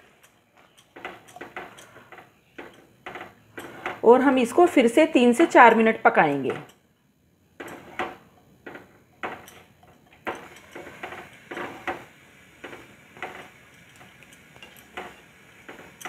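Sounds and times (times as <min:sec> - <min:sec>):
spatula scraping and tapping a pan: 0:00.0 - 0:04.2, 0:07.6 - 0:16.0.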